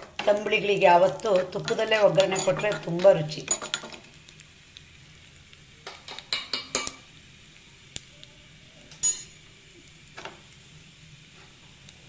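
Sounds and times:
steel utensils clinking: 1.3 - 4.0.

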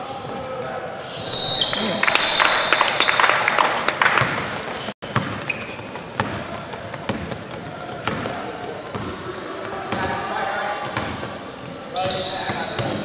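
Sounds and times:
voices in a gym: 0.0 - 3.5, 6.3 - 13.0
sneakers squeaking: 0.0 - 13.0
basketball bouncing on court: 4.0 - 10.2.

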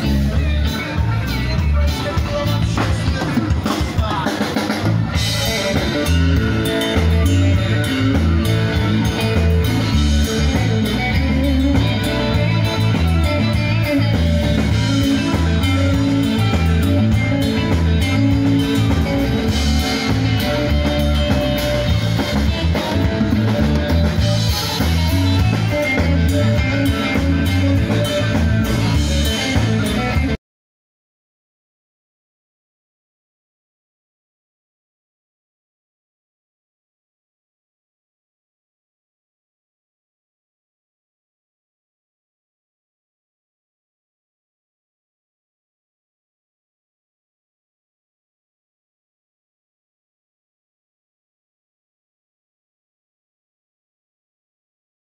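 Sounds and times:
drum kit steady beat: 0.0 - 30.4
electric guitar: 0.0 - 30.4.

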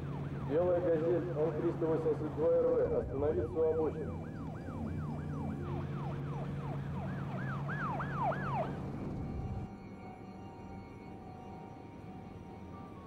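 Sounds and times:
police siren yelping: 0.0 - 9.7
low engine drone: 0.0 - 13.0.

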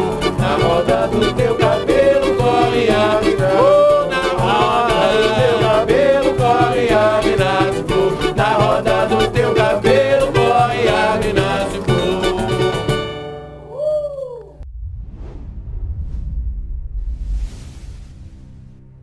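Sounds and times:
man singing: 0.0 - 13.1
cavaquinho and guitar strumming: 0.0 - 13.7
pandeiro beat: 0.0 - 14.6.

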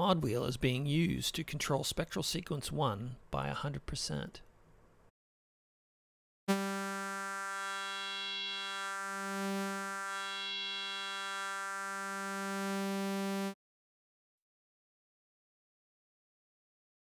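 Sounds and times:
held synthesizer note: 6.5 - 13.6.

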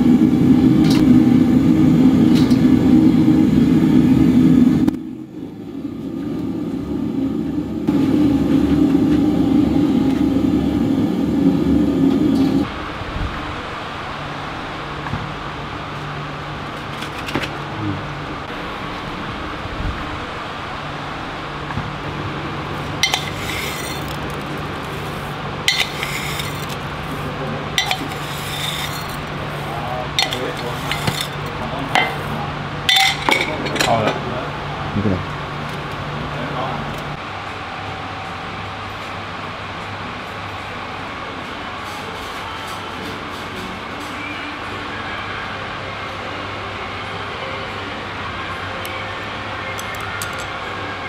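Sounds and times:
fan hum: 0.0 - 51.0
gas burner rushing rumble: 0.0 - 51.0
crockery and utensils clinking: 23.0 - 24.5, 25.7 - 26.8, 27.8 - 29.3, 30.1 - 32.3, 32.9 - 34.2.

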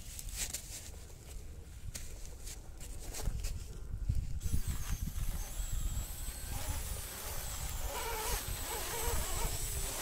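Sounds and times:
wind on microphone: 2.9 - 10.0
electric motor whining: 4.4 - 10.0.

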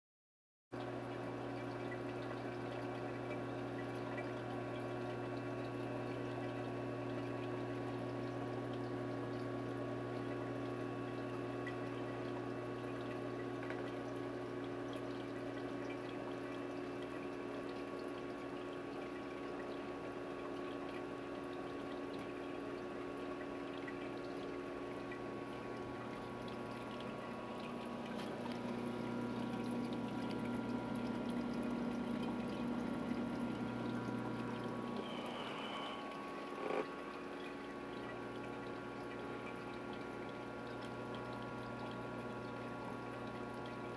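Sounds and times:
pump humming: 0.8 - 43.9
water trickling and pouring: 0.8 - 43.9.

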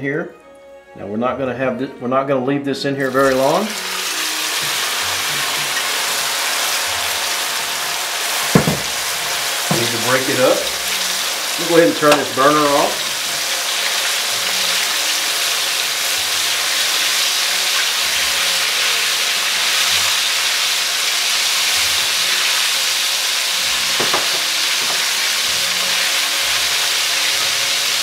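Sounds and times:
meat deep-frying in oil: 3.0 - 28.0.

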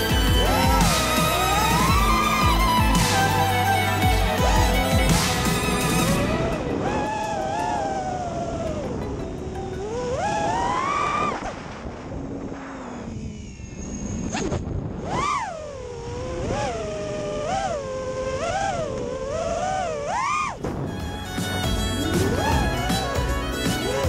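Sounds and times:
music: 0.0 - 10.3, 20.9 - 24.0
drone motors whining: 0.0 - 24.0.

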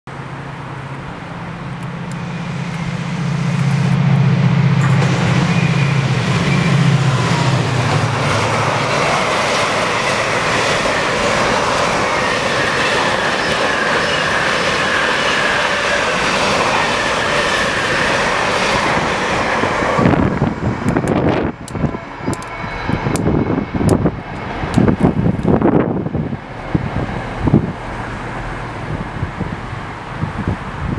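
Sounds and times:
diesel locomotive engine drone: 0.1 - 30.9
train wagons rumbling on rails: 0.2 - 30.9
wheels squealing: 4.9 - 19.7.

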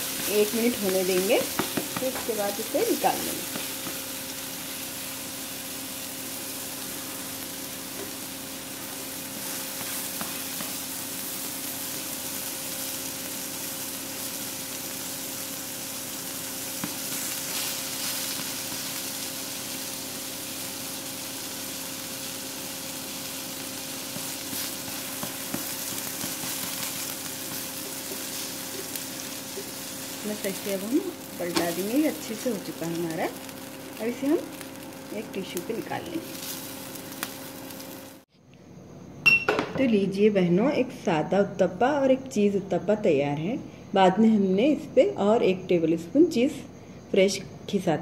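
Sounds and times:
food sizzling in oil: 0.0 - 38.3.

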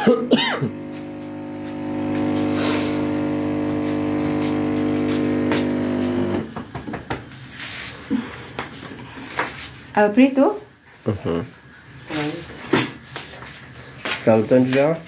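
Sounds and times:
steady droning hum: 0.0 - 6.1.

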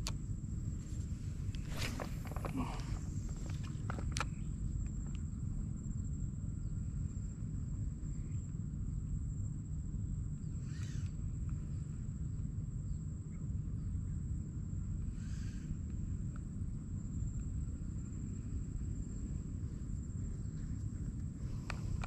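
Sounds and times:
insects droning: 0.0 - 22.0
brief rustle: 0.8 - 4.4.

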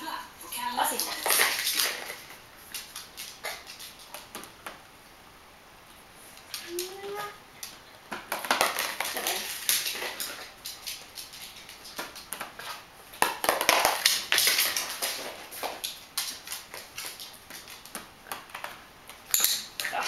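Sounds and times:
dog moving on wooden floor: 0.9 - 4.8, 7.6 - 19.8.

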